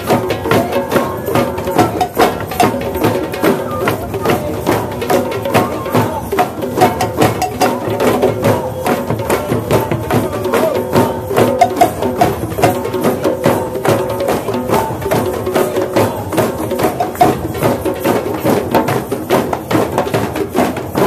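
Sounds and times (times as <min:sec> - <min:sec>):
drum circle playing: 0:00.0 - 0:21.0.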